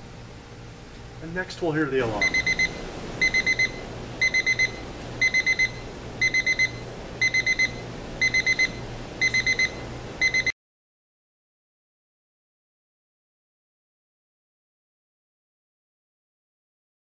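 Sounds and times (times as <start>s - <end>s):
alarm clock beeping: 2.2s - 10.5s.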